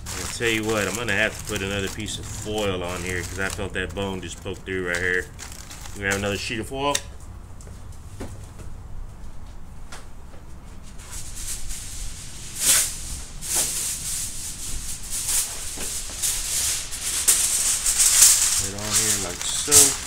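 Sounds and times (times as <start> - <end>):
aluminium foil crinkling: 0.0 - 6.8, 11.1 - 20.0.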